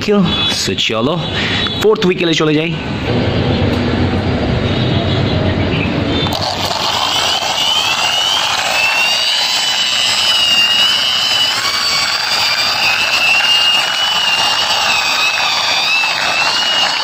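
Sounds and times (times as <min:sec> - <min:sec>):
high wavering whine: 0:02.7 - 0:17.0.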